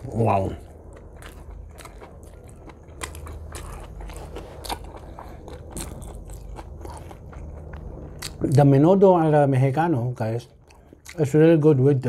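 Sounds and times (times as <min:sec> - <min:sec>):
person chewing tortilla: 0:00.0 - 0:08.7, 0:10.5 - 0:11.4.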